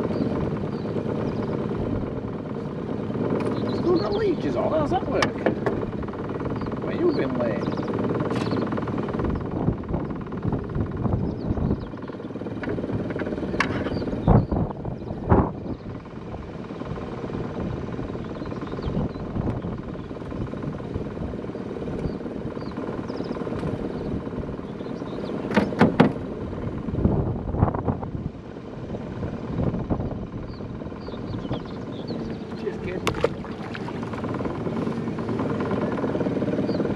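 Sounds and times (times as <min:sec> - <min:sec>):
wind rumble on microphone: 0:00.0 - 0:36.9
knocks in aluminium boat: 0:25.5 - 0:26.2, 0:33.0 - 0:34.2.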